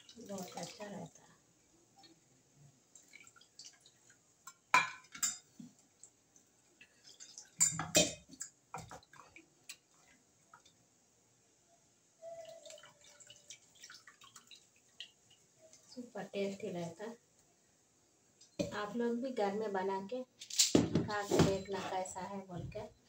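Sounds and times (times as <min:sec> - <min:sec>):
liquid being poured and stirred: 0:00.0 - 0:11.5, 0:12.2 - 0:18.6
metal utensils clinking on pot: 0:04.4 - 0:05.6, 0:06.9 - 0:08.6.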